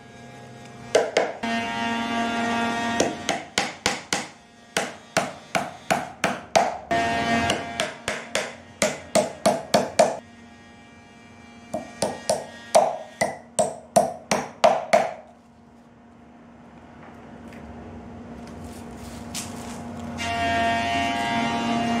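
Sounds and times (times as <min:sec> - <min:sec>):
hammer striking wooden base: 0:00.9 - 0:01.5, 0:03.0 - 0:10.2, 0:11.8 - 0:15.3.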